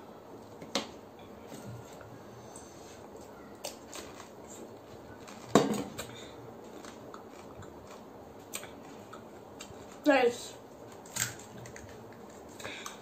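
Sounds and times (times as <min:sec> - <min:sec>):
faint chewing with clicks: 0:03.2 - 0:10.0, 0:10.9 - 0:13.0.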